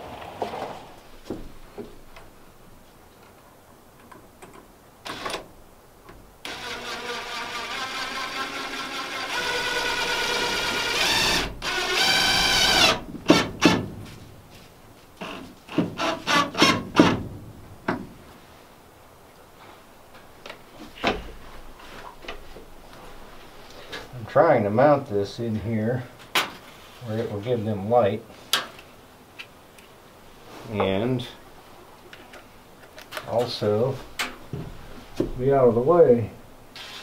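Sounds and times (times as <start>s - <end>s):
cordless drill driving screw: 6.4s - 13.4s.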